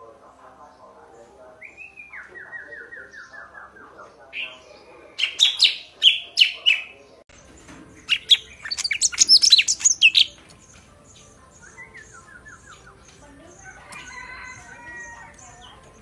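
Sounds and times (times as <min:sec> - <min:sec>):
bird high warbling: 0:08.1 - 0:10.4.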